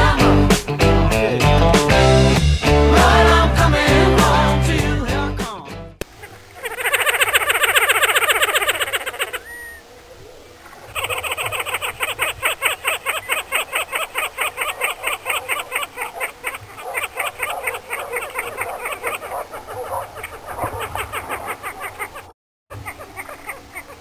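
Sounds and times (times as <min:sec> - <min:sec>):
fast croaking calls: 0:06.1 - 0:24.0.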